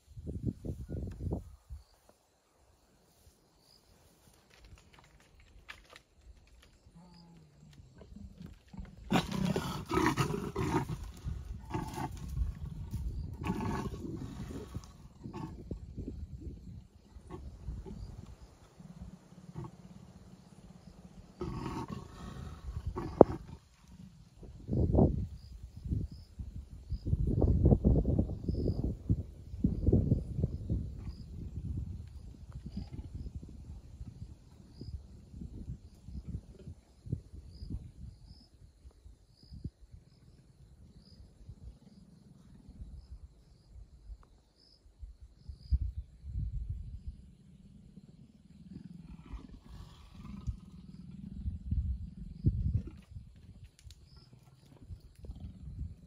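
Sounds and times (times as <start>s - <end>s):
insect chirping: 0.0s - 56.0s
leopard grunting and growling: 8.0s - 24.6s, 32.6s - 34.7s, 47.2s - 53.3s, 54.2s - 56.0s.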